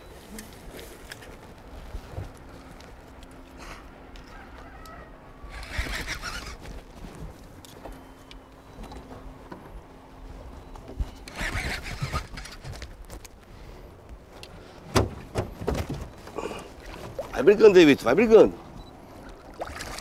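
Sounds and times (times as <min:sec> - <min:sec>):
fish splashing in water: 0:19.2 - 0:20.0.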